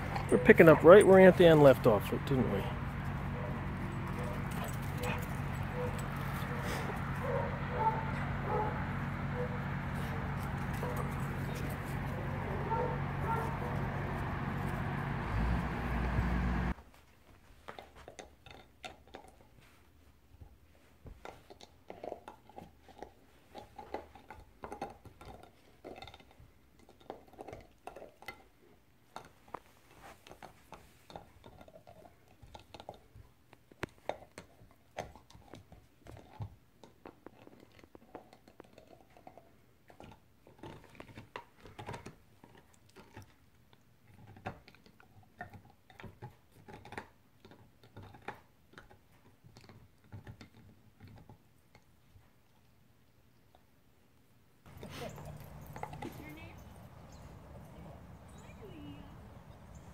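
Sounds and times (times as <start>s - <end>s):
puppy gnawing a hard chew: 17.6s - 20.0s, 21.1s - 53.7s, 54.6s - 57.6s.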